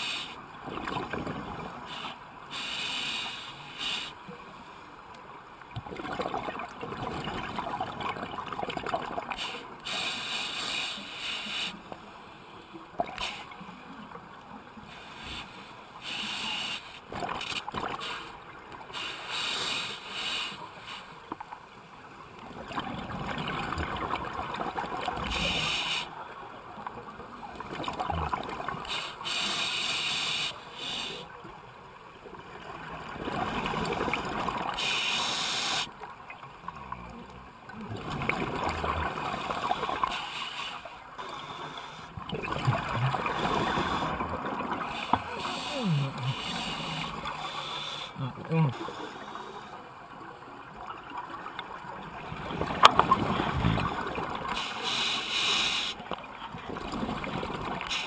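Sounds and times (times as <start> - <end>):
scuba regulator breathing: 9.4 - 11.8, 14.9 - 17.0, 19.0 - 21.1, 28.9 - 31.3, 34.8 - 35.9, 40.1 - 42.2, 43.1 - 49.8, 54.6 - 56.0.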